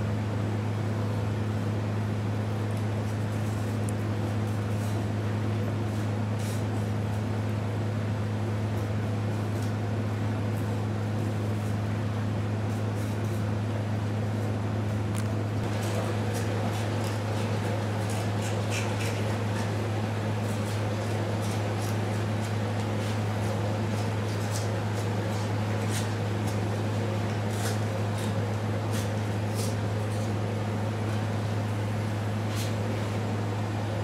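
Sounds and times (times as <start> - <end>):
steady low hum: 0.0 - 34.0
knife scraping skin: 15.8 - 19.8, 20.5 - 26.6, 27.3 - 30.4.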